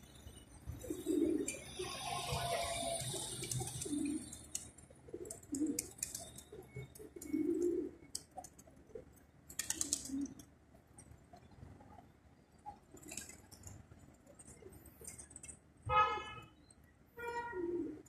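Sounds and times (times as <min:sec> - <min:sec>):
pigeons cooing: 0:00.8 - 0:10.5, 0:17.5 - 0:18.0.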